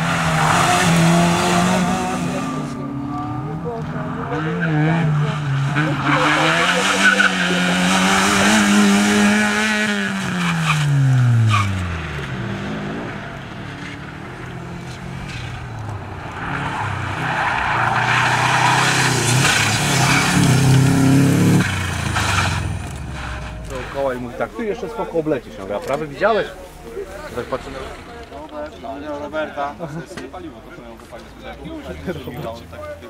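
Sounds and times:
rally car engine revving: 0:00.0 - 0:26.1
rally car engine approaching: 0:00.0 - 0:29.4
tyres sliding on gravel: 0:13.2 - 0:29.5.

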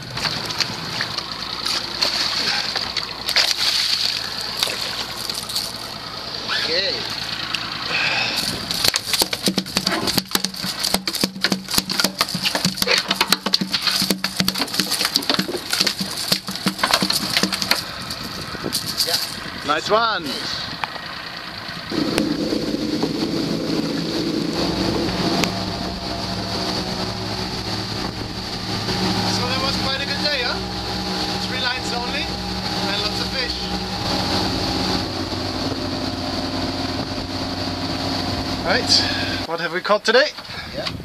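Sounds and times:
outboard motors running: 0:00.0 - 0:41.0
water and wind rushing: 0:00.0 - 0:41.0
fish tail slapping deck: 0:08.7 - 0:17.9.

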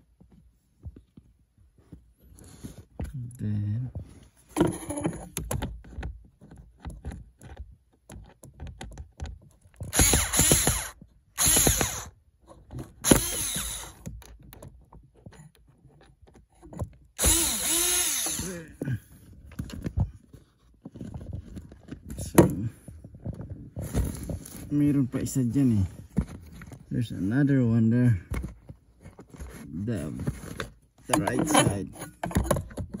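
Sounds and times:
cordless drill whining: 0:09.9 - 0:12.2, 0:13.0 - 0:14.2, 0:17.2 - 0:18.8.

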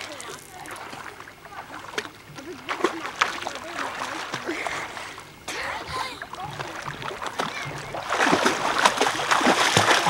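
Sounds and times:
child splashing in water: 0:05.6 - 0:10.0.

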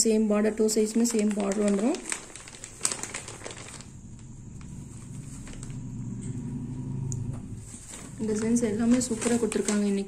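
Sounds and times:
vehicle engine rumble passing: 0:02.9 - 0:09.4.

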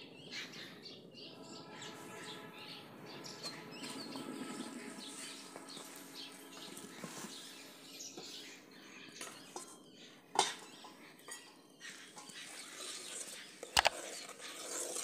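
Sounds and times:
faint birds chirping: 0:00.0 - 0:15.0
ladle clinking against pot: 0:09.2 - 0:12.5.

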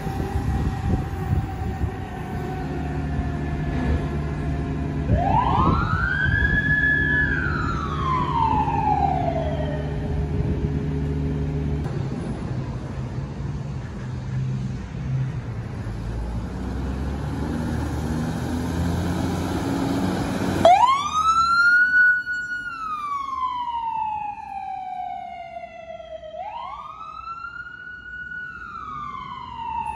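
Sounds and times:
emergency sirens wailing: 0:00.0 - 0:11.9, 0:16.8 - 0:29.9
heavy engine rumble: 0:00.0 - 0:21.1.

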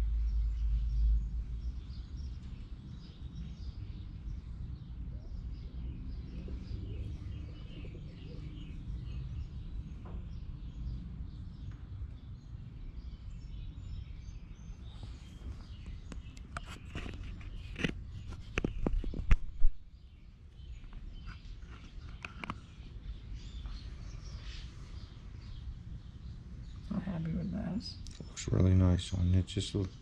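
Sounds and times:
low background rumble: 0:00.0 - 0:16.4.

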